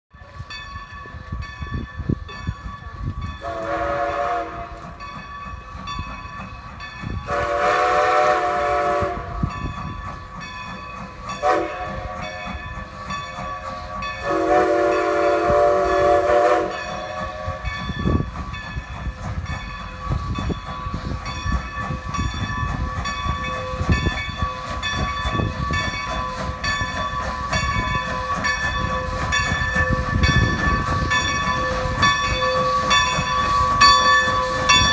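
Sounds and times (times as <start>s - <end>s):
locomotive bell ringing: 0.1s - 8.0s, 9.3s - 34.9s
low rumble of train: 0.1s - 34.9s
steam whistle blasts: 3.4s - 4.8s, 7.2s - 9.5s, 11.4s - 12.4s, 13.6s - 17.8s.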